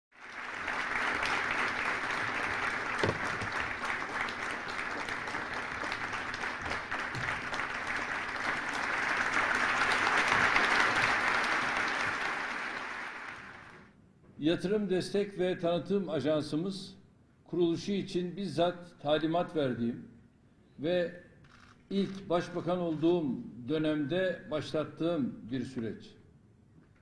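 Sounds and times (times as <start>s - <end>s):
audience applauding: 0.1s - 13.9s.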